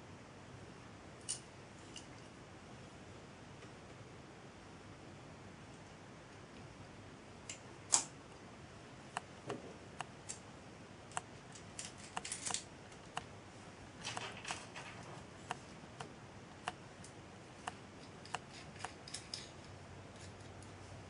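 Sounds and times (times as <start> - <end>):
small metal parts clicking: 11.5 - 12.7, 18.0 - 20.7.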